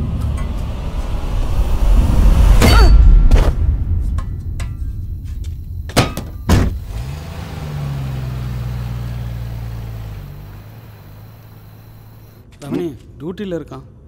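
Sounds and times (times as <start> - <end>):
car engine starting and running: 0.0 - 12.4
car doors thudding shut: 5.9 - 7.1.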